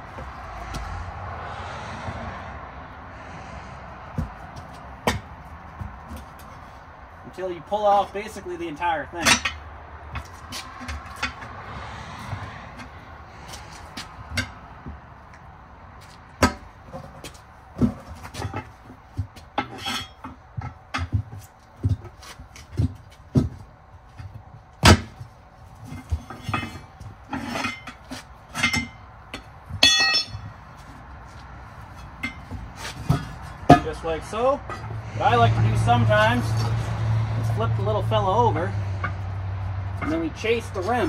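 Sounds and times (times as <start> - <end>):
tire spoons clanking on metal rim: 4.1 - 41.0
ringing metal clink: 29.8 - 30.5.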